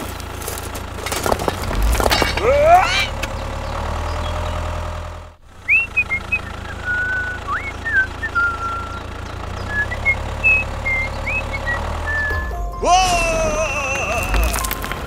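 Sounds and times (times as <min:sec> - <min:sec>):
tractor engine hum: 0:00.0 - 0:15.0
bird-like whistled chirps: 0:05.6 - 0:12.6.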